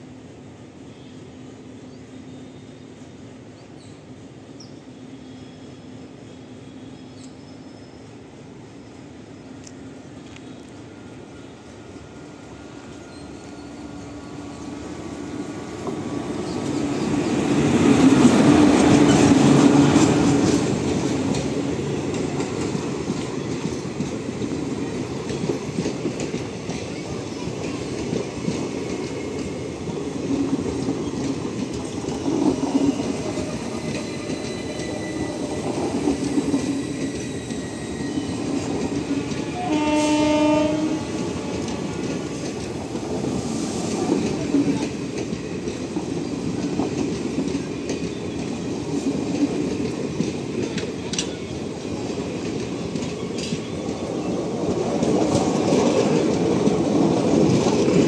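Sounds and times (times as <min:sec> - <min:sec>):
train wheels rumbling on rails: 0:06.8 - 0:58.0
train horn: 0:39.3 - 0:42.0.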